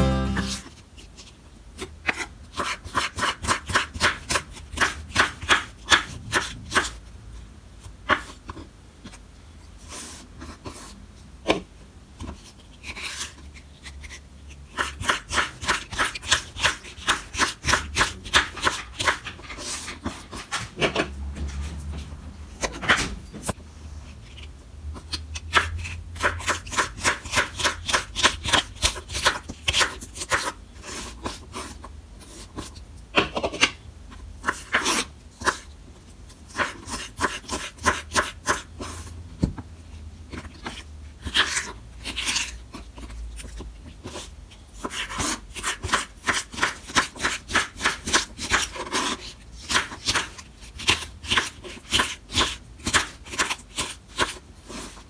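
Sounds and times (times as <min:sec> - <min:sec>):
knife cutting cactus on wooden board: 0:36.5 - 0:39.0, 0:40.4 - 0:55.0.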